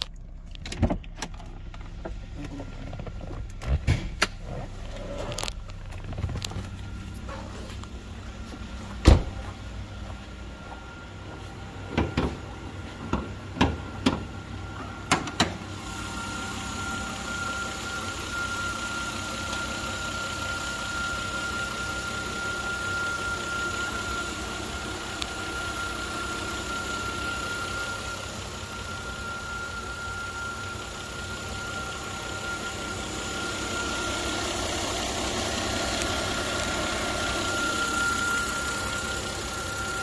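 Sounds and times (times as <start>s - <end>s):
car door shutting: 0.0s - 7.8s, 8.4s - 9.5s, 11.8s - 15.7s
car engine idling: 0.0s - 40.0s.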